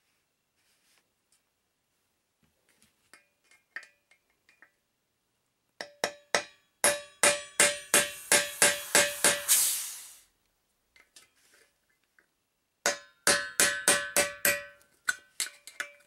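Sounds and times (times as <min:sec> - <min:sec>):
hammer striking steel on keg: 0:06.0 - 0:09.5, 0:12.9 - 0:14.8.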